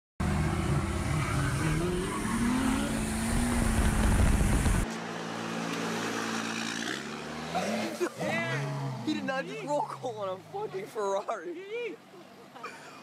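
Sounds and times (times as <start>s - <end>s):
diesel truck engine revving: 0.2s - 4.8s.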